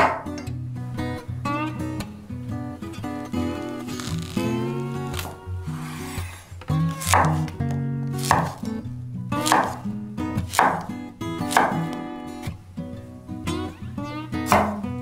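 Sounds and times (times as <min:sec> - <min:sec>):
acoustic guitar music: 0:00.0 - 0:15.0
knife cutting on wooden board: 0:05.1 - 0:07.5, 0:08.2 - 0:08.6, 0:09.4 - 0:09.8, 0:10.5 - 0:10.9, 0:11.5 - 0:11.9, 0:14.5 - 0:14.8.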